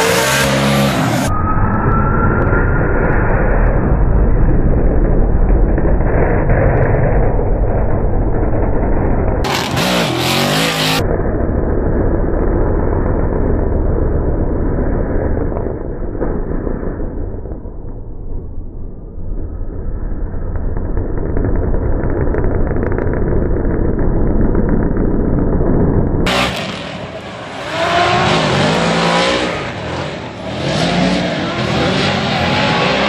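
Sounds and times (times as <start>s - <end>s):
car engines at high revs: 0.0s - 1.3s, 8.9s - 15.7s, 26.3s - 33.0s.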